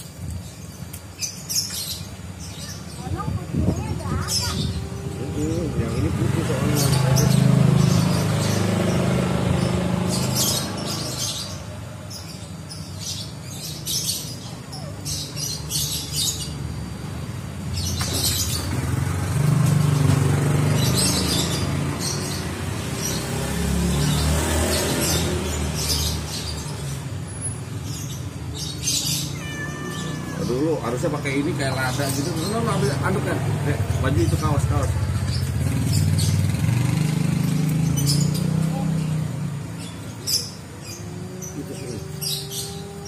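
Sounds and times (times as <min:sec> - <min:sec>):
low engine hum: 0:03.2 - 0:12.0, 0:32.5 - 0:43.0.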